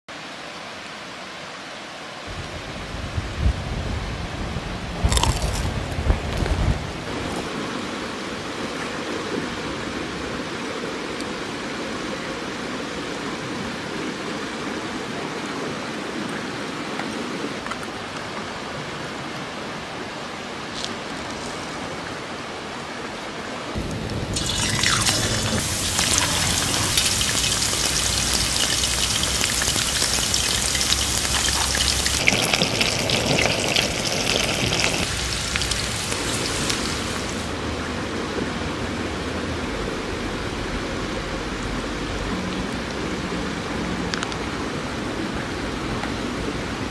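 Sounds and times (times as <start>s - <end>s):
meat being prepared: 23.8s - 37.2s
meat deep-frying in oil: 23.8s - 37.6s.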